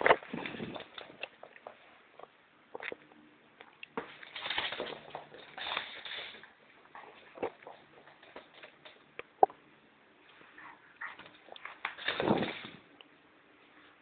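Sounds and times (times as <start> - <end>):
dog paws tapping: 4.0 - 9.3.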